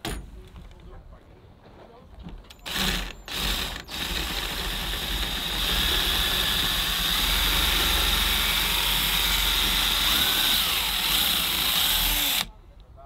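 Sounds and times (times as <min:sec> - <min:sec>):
cordless drill running: 0:02.6 - 0:12.5.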